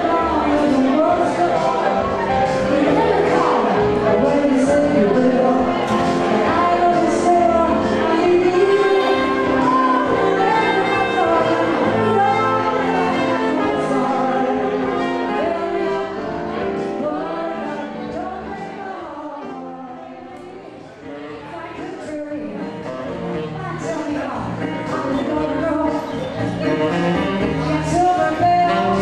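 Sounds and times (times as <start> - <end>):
saxophone playing: 0.0 - 17.4, 25.1 - 29.0
keyboard backing: 0.0 - 29.0
woman singing: 0.0 - 29.0.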